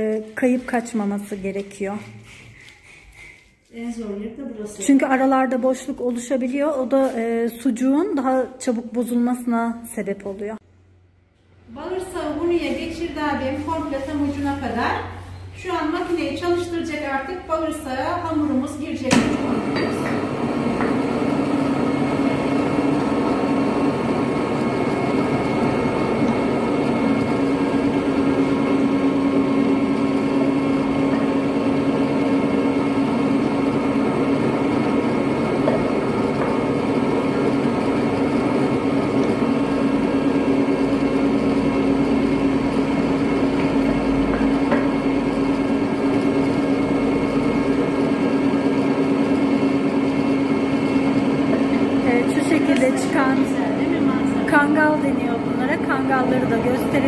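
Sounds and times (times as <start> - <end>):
electric meat grinder humming: 19.1 - 57.0.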